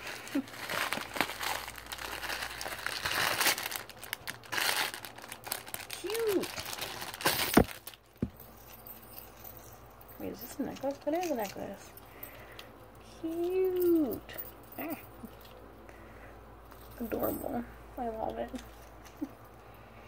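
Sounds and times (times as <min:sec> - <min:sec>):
plastic packaging crinkling: 0:00.0 - 0:09.0, 0:10.3 - 0:11.9.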